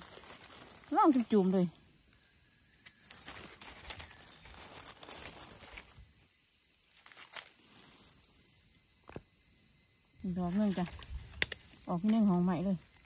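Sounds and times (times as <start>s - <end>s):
rustling in leaf litter: 0.0s - 1.7s, 2.9s - 6.2s
insects chorus: 0.0s - 13.0s.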